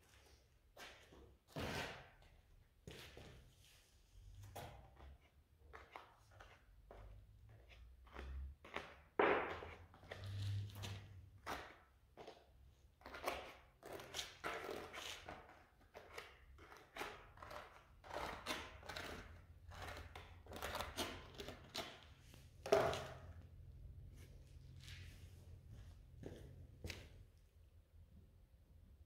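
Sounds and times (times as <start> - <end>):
trowel scraping adhesive on concrete: 13.0 - 23.2.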